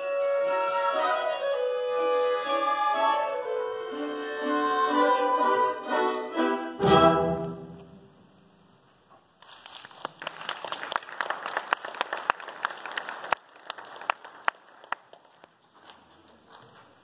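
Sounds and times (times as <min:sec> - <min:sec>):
audience applauding: 0:09.4 - 0:16.7.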